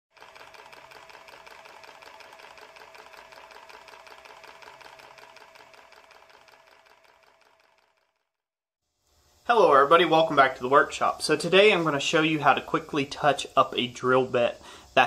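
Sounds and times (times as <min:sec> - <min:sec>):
rapid mechanical clicking: 0:00.1 - 0:08.4.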